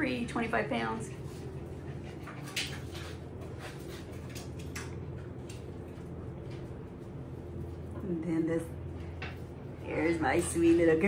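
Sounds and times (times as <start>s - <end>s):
steady low hum: 0.0s - 11.0s
puppies clicking and rustling: 1.0s - 8.0s.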